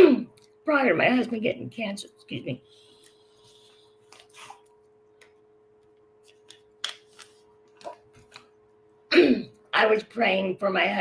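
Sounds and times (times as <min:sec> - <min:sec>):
steady faint hum: 0:00.0 - 0:11.0
person sipping from cup: 0:04.1 - 0:04.7.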